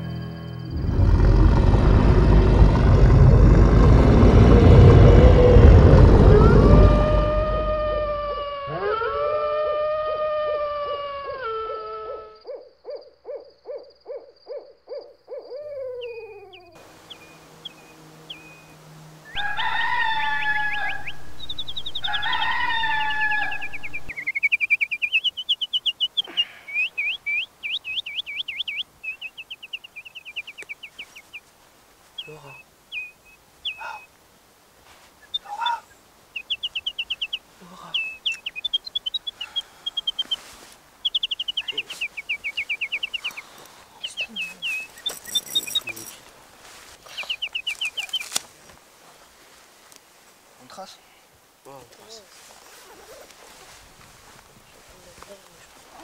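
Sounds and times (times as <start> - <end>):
owl-like hooting: 0.7 - 25.3, 33.7 - 34.1
rooster crowing: 4.3 - 12.4, 15.8 - 24.2
songbirds chirping: 11.2 - 56.0
rapid pulsing call: 16.8 - 28.8, 35.2 - 46.2.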